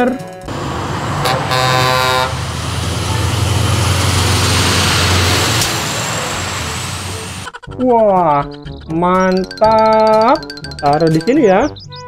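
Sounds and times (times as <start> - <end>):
truck engine rumble driving past: 0.5 - 7.5
truck horn: 0.5 - 7.5.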